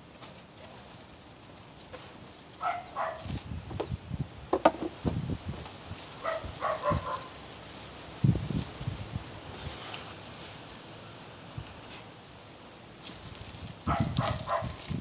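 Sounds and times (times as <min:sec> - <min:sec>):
dog barking: 0:02.6 - 0:03.3, 0:06.2 - 0:07.3, 0:13.9 - 0:14.8
cardboard box handling knocks: 0:03.7 - 0:05.2.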